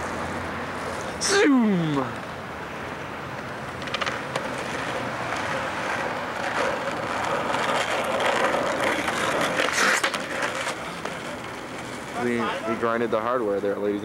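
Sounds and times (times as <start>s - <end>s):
skateboard wheels rolling on asphalt: 0.0s - 1.4s, 2.0s - 14.0s
skateboard clacks: 3.3s - 12.8s.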